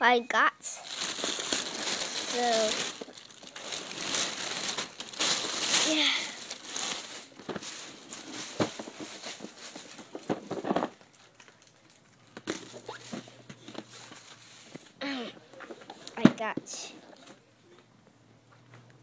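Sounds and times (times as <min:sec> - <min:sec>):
packaging rustling and crinkling: 0:00.8 - 0:15.0.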